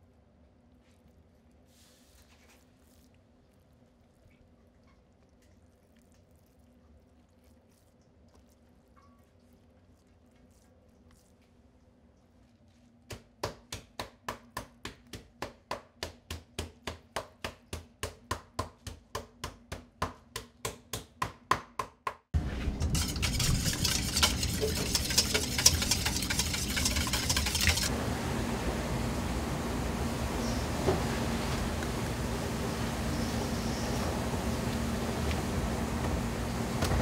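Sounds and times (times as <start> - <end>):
kitchen din: 22.4 - 27.9.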